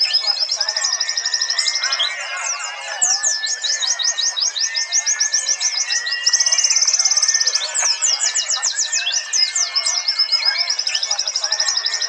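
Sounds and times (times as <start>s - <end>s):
bird trilling: 0.0s - 12.0s
birds chattering: 0.0s - 12.0s.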